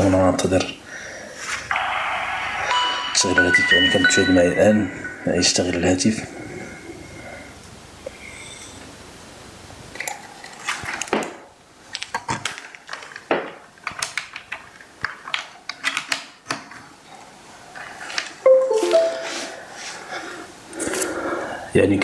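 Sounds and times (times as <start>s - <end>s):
brief pitched tone: 18.5s - 19.6s.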